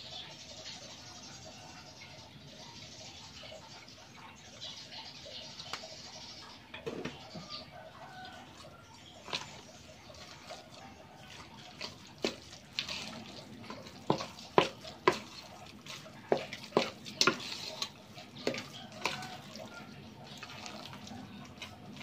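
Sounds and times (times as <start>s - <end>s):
soft wet stirring: 1.0s - 22.0s
spatula knocking metal pot: 13.7s - 15.5s, 16.2s - 19.2s.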